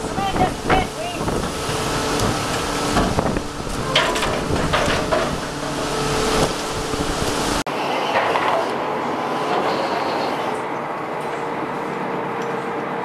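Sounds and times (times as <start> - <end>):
wind noise on microphone: 0.0 - 7.6
boat engine running: 0.0 - 7.7.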